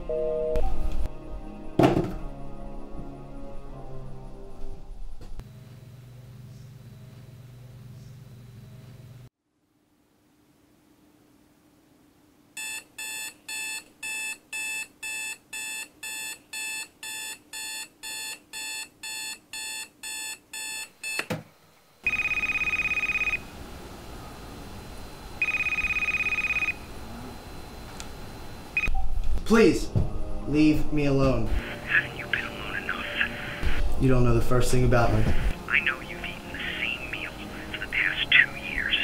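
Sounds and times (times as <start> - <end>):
alarm clock beeping: 12.6 - 21.2, 22.1 - 23.4, 25.4 - 26.8
cordless phone ringing: 22.0 - 23.4, 25.4 - 26.8.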